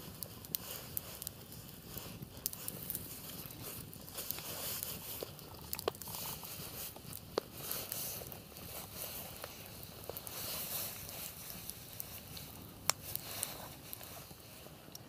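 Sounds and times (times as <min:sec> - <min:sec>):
sharp pops of fire: 0:00.0 - 0:14.1
campfire crackling: 0:00.0 - 0:15.0.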